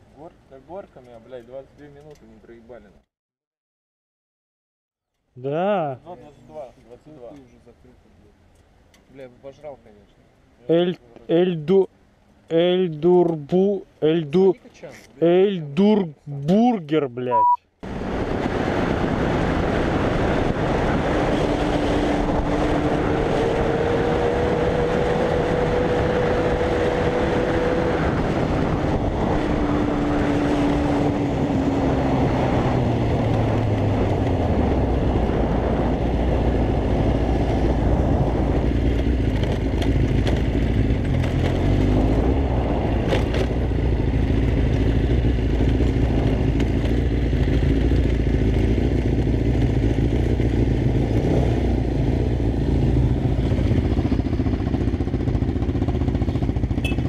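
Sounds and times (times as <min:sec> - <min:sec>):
wind on microphone: 0:17.8 - 0:54.7
motorcycle engine running: 0:28.5 - 0:57.0.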